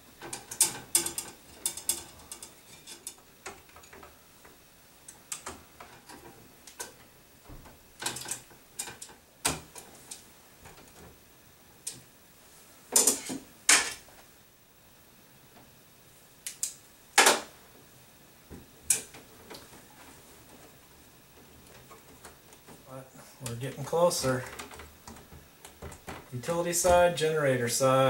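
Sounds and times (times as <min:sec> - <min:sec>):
tools clicking and scraping on wires: 0:00.2 - 0:07.1, 0:08.0 - 0:11.1, 0:13.0 - 0:14.0.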